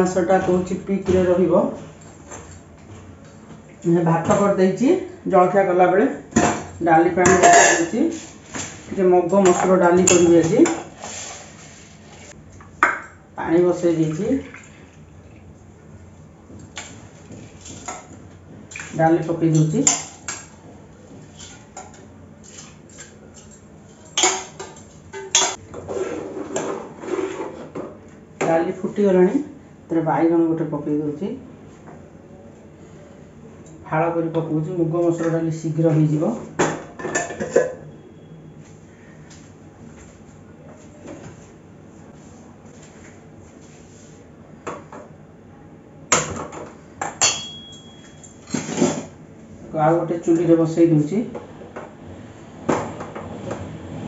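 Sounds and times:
metal pots and lids clanking: 6.4s - 11.0s, 19.5s - 20.6s, 21.3s - 25.6s, 36.6s - 37.9s, 46.2s - 49.1s
metal utensils clinking: 7.2s - 8.6s, 19.5s - 20.6s, 21.4s - 25.6s, 47.2s - 49.0s.

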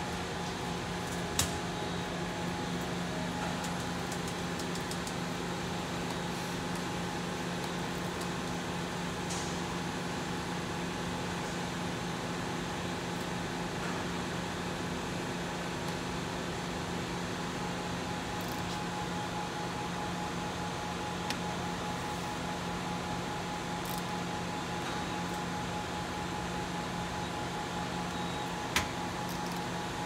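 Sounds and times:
machine idling hum: 0.0s - 11.0s.

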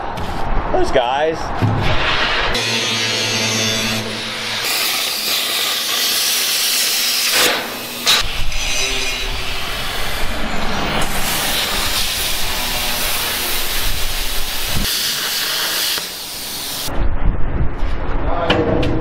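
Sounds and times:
plasma cutter hissing: 2.0s - 16.9s.

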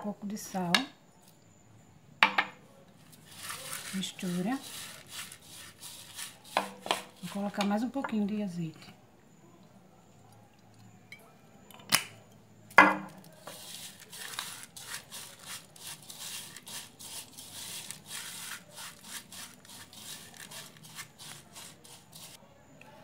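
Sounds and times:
brush scraping in glass bowl: 3.1s - 7.6s, 13.5s - 22.4s.

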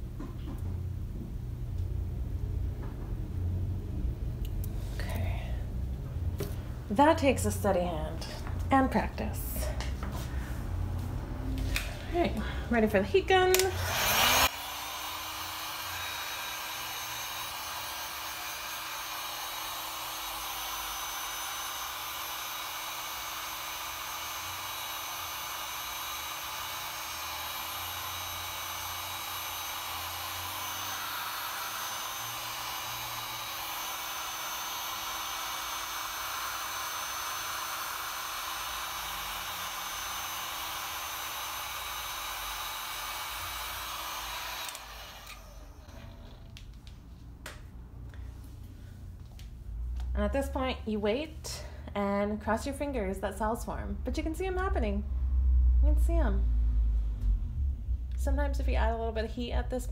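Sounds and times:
heat gun blowing air: 11.6s - 46.5s
motor hum: 13.3s - 46.6s.

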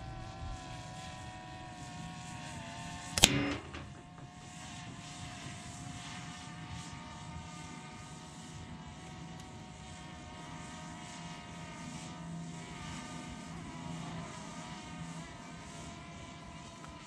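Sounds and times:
engine-like drone: 0.0s - 17.0s
air rifle shot: 3.2s - 4.1s.

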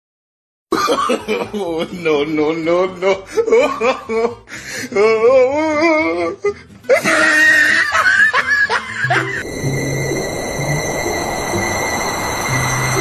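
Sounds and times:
music: 0.7s - 13.0s
person laughing hard: 3.0s - 4.4s, 6.9s - 9.4s.

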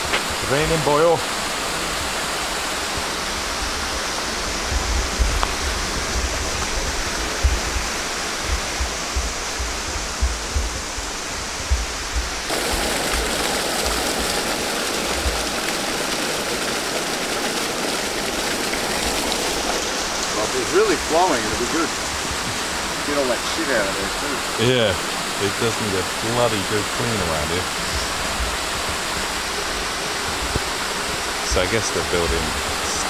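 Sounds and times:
waterfall and stream rushing: 0.0s - 33.0s
low thumps on microphone: 4.6s - 12.5s.

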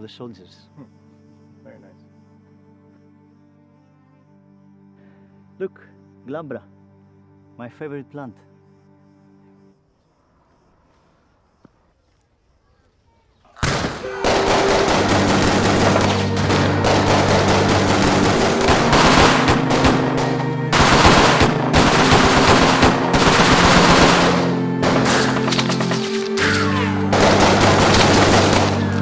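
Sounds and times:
low sustained music: 0.0s - 9.9s, 14.3s - 29.0s
automatic gunfire bursts: 13.6s - 29.0s.

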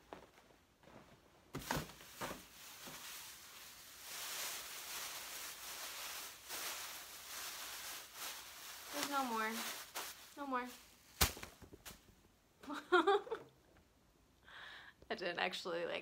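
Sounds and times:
plastic bag rustling: 0.1s - 12.1s.

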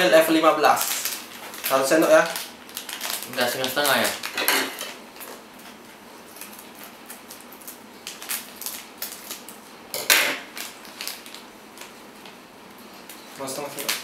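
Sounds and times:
plastic sachet rustling: 0.1s - 5.4s, 6.2s - 9.6s, 10.4s - 12.0s.

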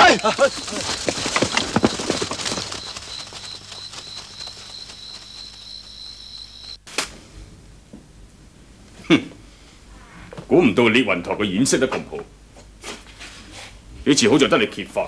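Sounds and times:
footsteps running through undergrowth: 0.0s - 6.8s
insects chirping pulsing trill: 0.0s - 6.9s.

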